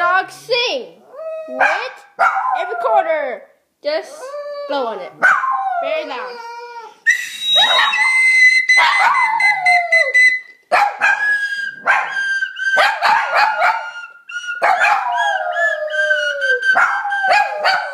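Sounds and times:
small dog howling: 0:04.2 - 0:07.0, 0:07.6 - 0:10.2, 0:12.8 - 0:17.9.

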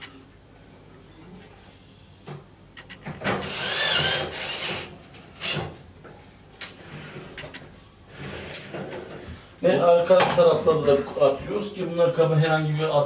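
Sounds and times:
cordless drill whining: 0:03.4 - 0:05.6.

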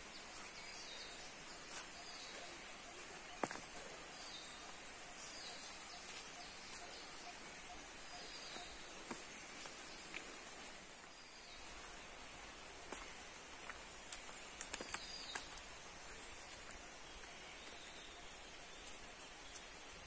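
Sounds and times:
forest ambience: 0:00.0 - 0:20.0
footsteps on dry leaves: 0:01.2 - 0:04.6, 0:11.4 - 0:20.0.

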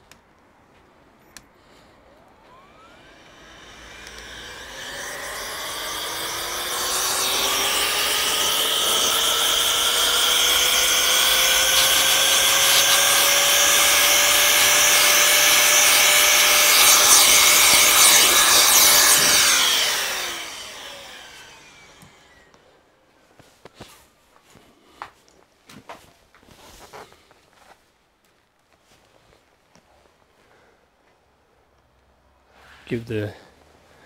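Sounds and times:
fan whine: 0:01.2 - 0:23.4.

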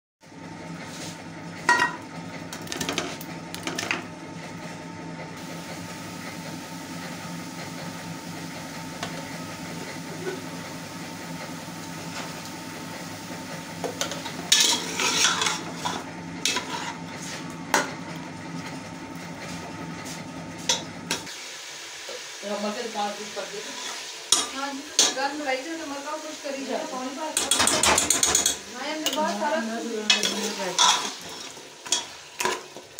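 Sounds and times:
metal ladle scraping pot: 0:14.0 - 0:17.4, 0:30.1 - 0:32.7.

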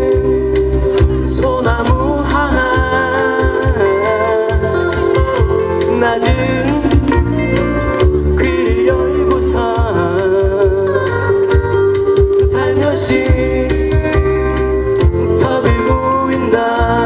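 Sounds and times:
acoustic guitar: 0:00.0 - 0:17.0
band backing with steady beat: 0:00.0 - 0:17.0
man singing with vibrato: 0:00.0 - 0:17.0.

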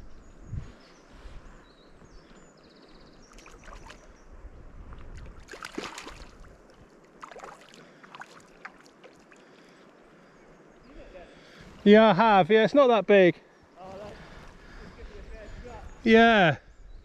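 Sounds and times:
wind on microphone: 0:00.0 - 0:02.2, 0:03.0 - 0:06.9, 0:14.0 - 0:17.0
fish splashing in water: 0:05.2 - 0:09.5.

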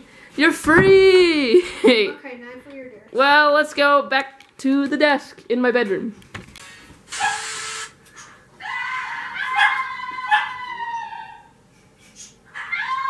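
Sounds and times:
dog whining and yelping: 0:07.2 - 0:07.5, 0:09.2 - 0:11.6, 0:12.3 - 0:13.0.

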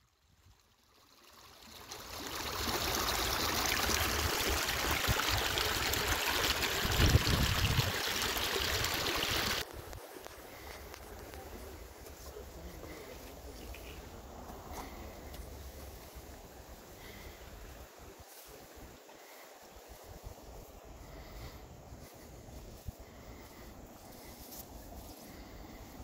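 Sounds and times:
creek splashing over rocks: 0:00.4 - 0:09.7.

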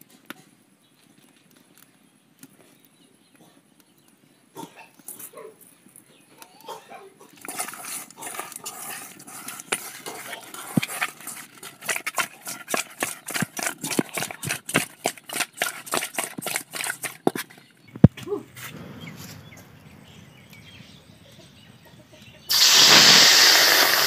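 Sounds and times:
wet squelches of hand mixing: 0:07.3 - 0:17.7.

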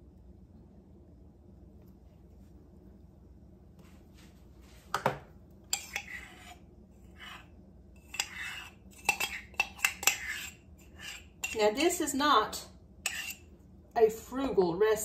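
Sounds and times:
ceramic mug clinking and scraping: 0:05.7 - 0:11.7, 0:13.1 - 0:13.5.

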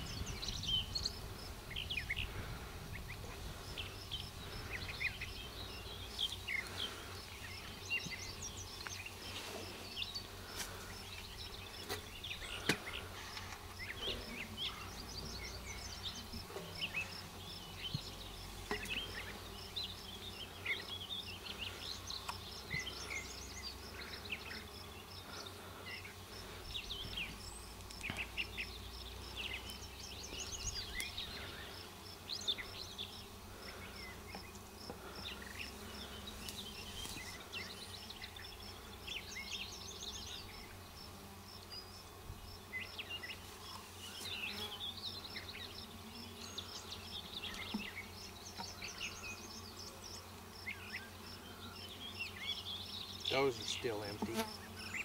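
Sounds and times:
bees buzzing: 0:00.0 - 0:55.0.

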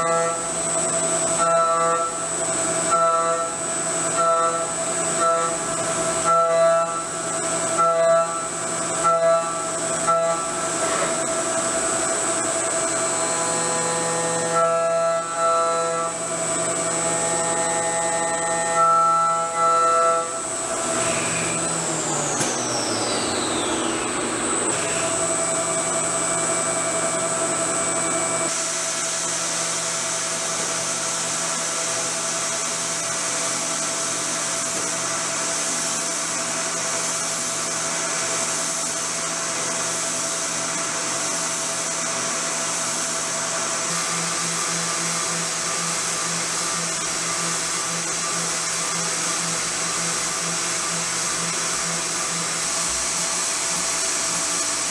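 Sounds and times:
milling spindle whine: 0:40.4 - 0:54.9.

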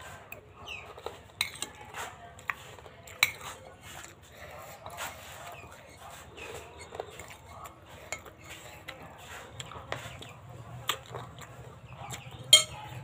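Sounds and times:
spoon clinking against a bowl: 0:00.3 - 0:03.6, 0:05.7 - 0:09.0, 0:12.0 - 0:13.0.

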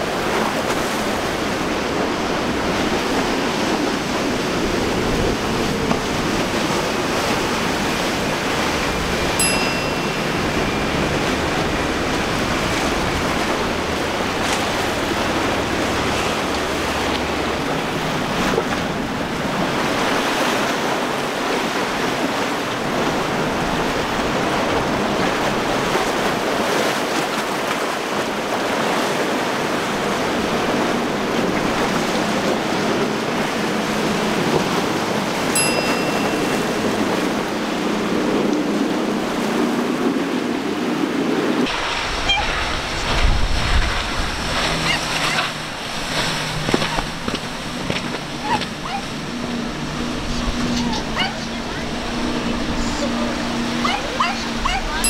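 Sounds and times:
boats spraying through water: 0:00.0 - 0:55.0
rough water churning: 0:00.0 - 0:55.0
wind buffeting microphone: 0:36.4 - 0:55.0.

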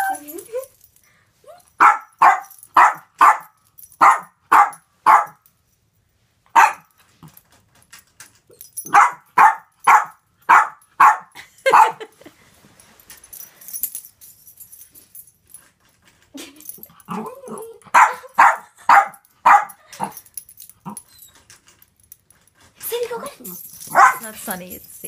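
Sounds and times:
small dog barking: 0:01.8 - 0:05.4, 0:06.6 - 0:06.9, 0:08.9 - 0:12.0, 0:17.9 - 0:20.1, 0:23.9 - 0:24.3.

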